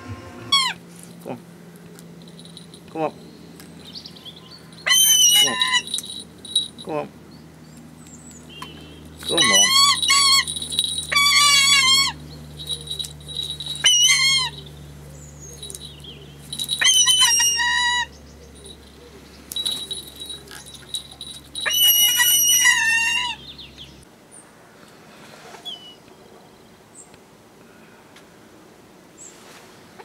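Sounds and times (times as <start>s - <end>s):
hawk squealing calls: 4.8s - 6.0s, 9.2s - 14.7s, 16.8s - 18.1s, 21.6s - 23.4s.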